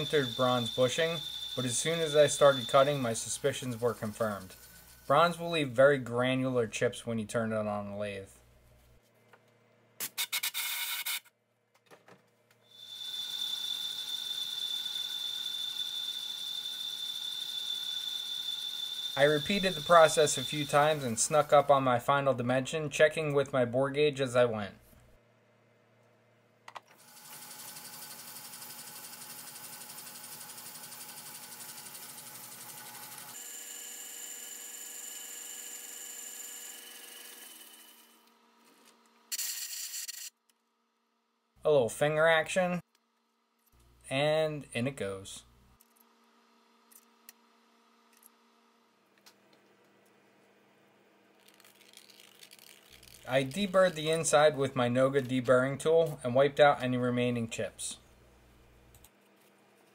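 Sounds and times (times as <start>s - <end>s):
metal lathe whining: 0.0s - 5.6s, 12.8s - 21.6s.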